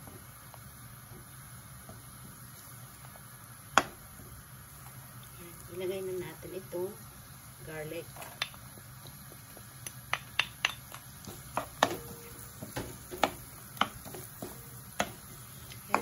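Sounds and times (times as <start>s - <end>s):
garlic sizzling in butter: 0.0s - 16.0s
sharp pops and clicks: 8.3s - 12.0s.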